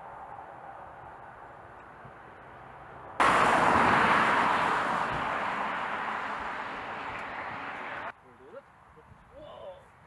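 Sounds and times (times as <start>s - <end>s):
car driving past: 3.2s - 8.1s.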